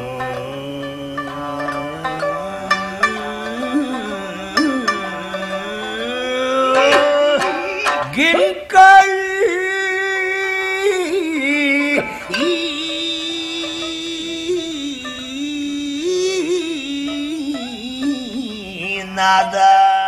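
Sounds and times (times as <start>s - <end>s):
shamisen plucks: 0.0s - 9.6s, 10.4s - 18.9s
man singing long wavering notes: 0.0s - 20.0s.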